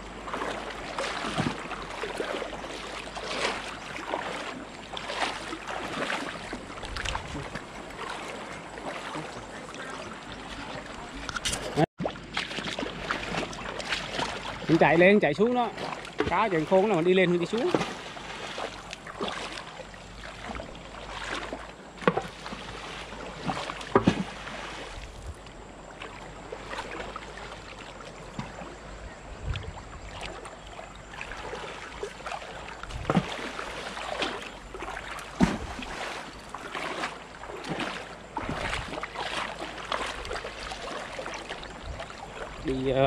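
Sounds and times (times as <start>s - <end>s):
people wading through stream: 0.0s - 43.0s
stream flowing: 0.0s - 43.0s.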